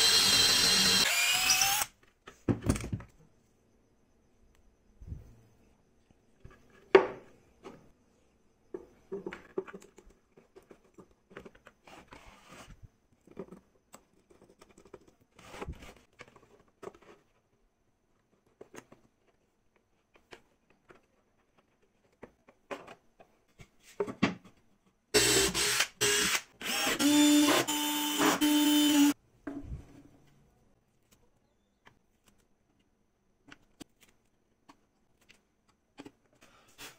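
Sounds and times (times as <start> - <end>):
electric drill boring into wood: 0.0 - 1.9, 25.2 - 29.2.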